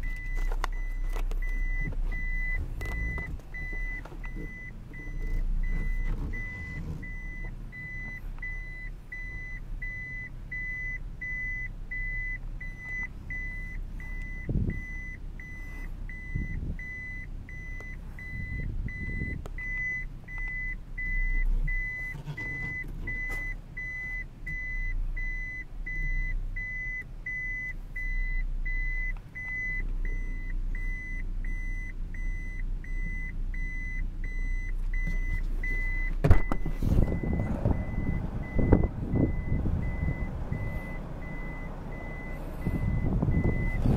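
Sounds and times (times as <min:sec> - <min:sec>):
car engine running: 0:00.0 - 0:43.9
short high warning beeps: 0:00.0 - 0:43.9
dull bumps from car: 0:36.1 - 0:37.9.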